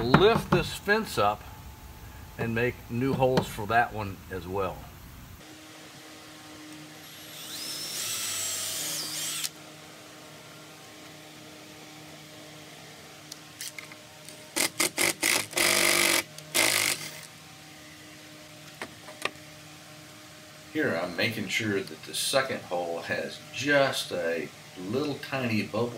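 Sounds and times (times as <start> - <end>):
cordless drill boring into wood: 6.6 - 9.6, 14.6 - 17.3.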